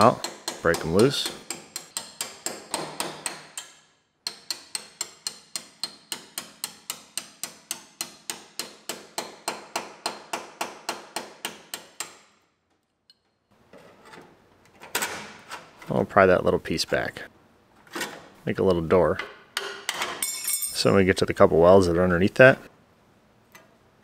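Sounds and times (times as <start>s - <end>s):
hammer striking sheet steel: 0.0s - 12.3s.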